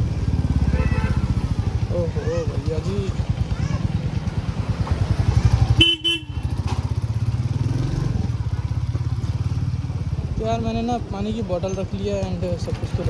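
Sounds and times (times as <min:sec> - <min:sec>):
vehicle horn pulses: 0:00.6 - 0:01.4, 0:05.8 - 0:06.7
motorcycle engine thumping: 0:02.8 - 0:09.4.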